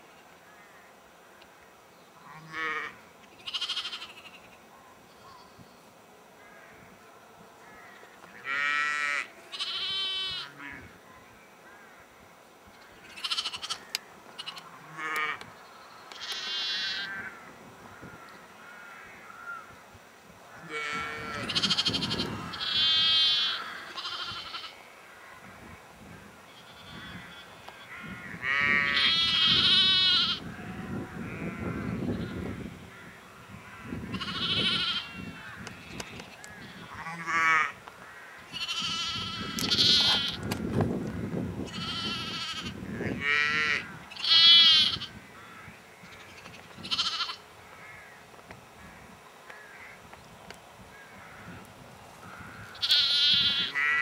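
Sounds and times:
sheep bleating: 0:02.3 - 0:04.2, 0:08.4 - 0:10.8, 0:13.1 - 0:13.8, 0:16.2 - 0:17.3, 0:20.6 - 0:24.8, 0:26.6 - 0:32.4, 0:33.8 - 0:36.0, 0:38.5 - 0:40.4, 0:41.7 - 0:45.2, 0:46.8 - 0:47.4, 0:52.7 - 0:54.0.

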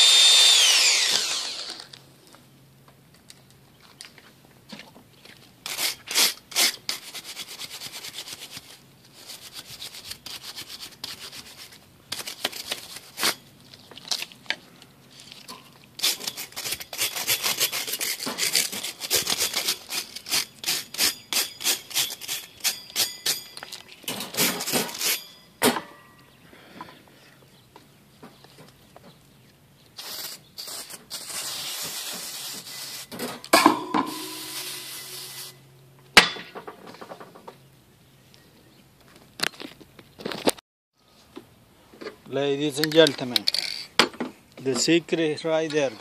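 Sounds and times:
wire brush scraping metal wires: 0:05.6 - 0:13.5, 0:15.1 - 0:25.5, 0:30.0 - 0:35.6.

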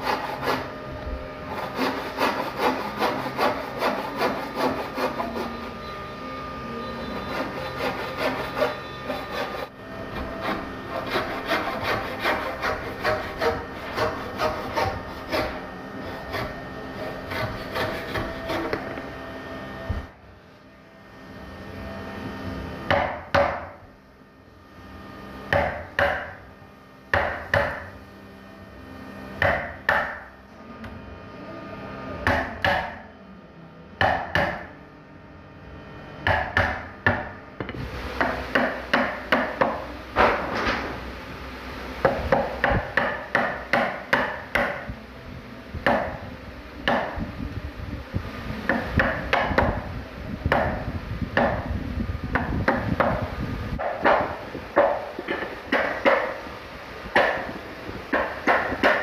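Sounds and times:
mallet striking wood chisel: 0:22.9 - 0:23.7, 0:25.5 - 0:26.4, 0:27.1 - 0:27.8, 0:29.4 - 0:30.2, 0:32.2 - 0:33.0, 0:34.0 - 0:34.7, 0:36.2 - 0:40.4, 0:42.0 - 0:44.9, 0:46.8 - 0:47.2, 0:48.7 - 0:49.8, 0:51.4 - 0:51.6, 0:53.8 - 0:56.4, 0:57.2 - 0:57.5, 0:58.1 - 0:59.0.

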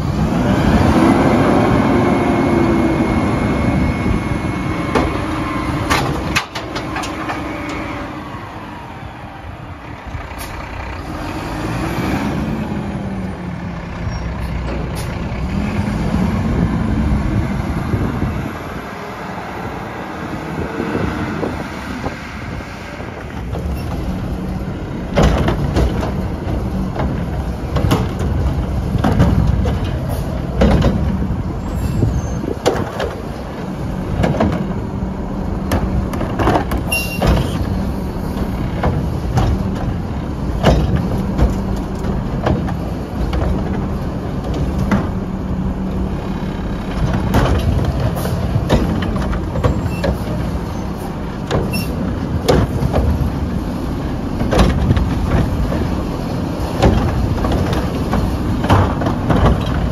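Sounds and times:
garbage truck engine under load: 0:00.0 - 0:59.9
loud knocks and bangs of carts: 0:04.4 - 0:08.2, 0:23.0 - 0:59.9.

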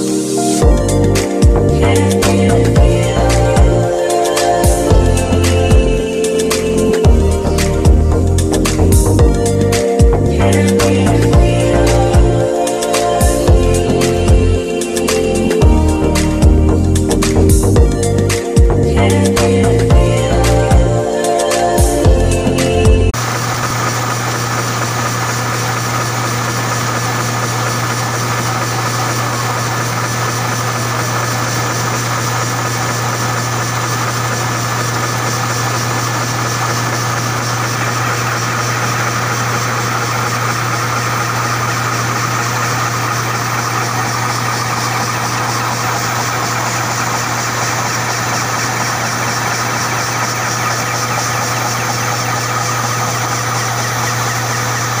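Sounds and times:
low machine hum: 0:00.0 - 0:55.0
machine whining tones: 0:00.0 - 0:55.0
fast mechanical rattle: 0:23.1 - 0:55.0.

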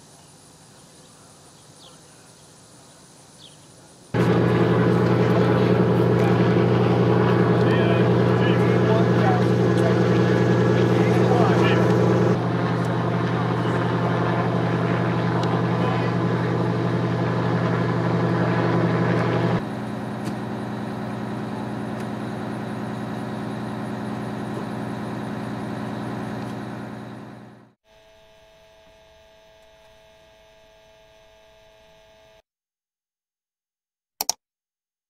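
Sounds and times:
engine hum: 0:04.1 - 0:27.8
helicopter rotor and engine drone: 0:04.1 - 0:27.8
faint electronic tone: 0:27.9 - 0:32.4.

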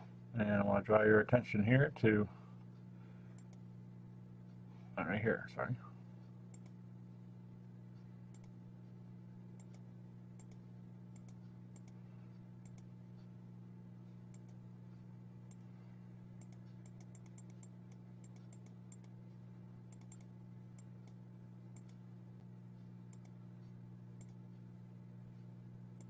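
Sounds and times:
faint low hum: 0:00.0 - 0:26.0
light clicks: 0:06.5 - 0:06.8, 0:08.3 - 0:08.6, 0:10.4 - 0:12.0, 0:16.4 - 0:19.2, 0:19.9 - 0:21.2, 0:23.1 - 0:23.4, 0:24.2 - 0:24.4.

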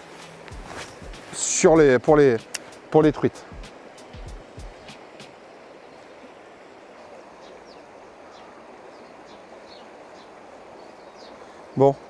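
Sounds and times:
river rushing over weirs: 0:00.0 - 0:12.0
faint bird chirps: 0:05.7 - 0:12.0.

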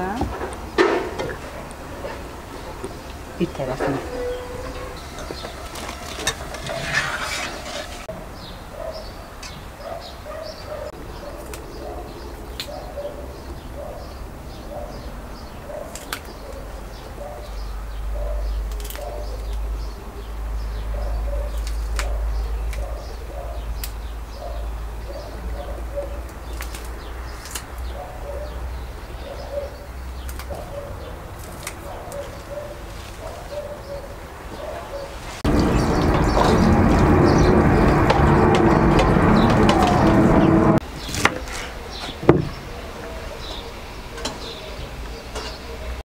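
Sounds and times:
doves cooing: 0:00.0 - 0:08.1, 0:27.9 - 0:40.8
small birds chirping: 0:00.0 - 0:46.0
wind rumble on microphone: 0:35.4 - 0:40.8.

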